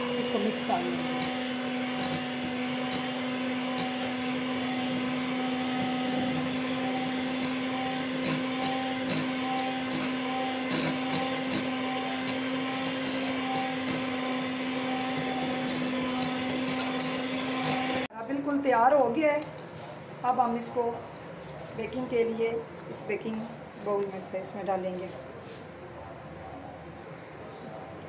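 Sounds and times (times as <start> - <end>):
electric hand mixer whirring: 0.0 - 18.1.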